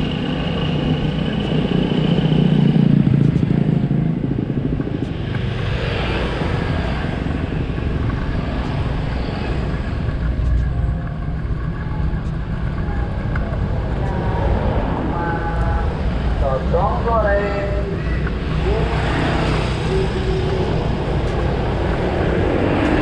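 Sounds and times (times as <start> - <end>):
motorcycle engine: 0.0 - 16.6
wind and road noise: 0.0 - 23.0.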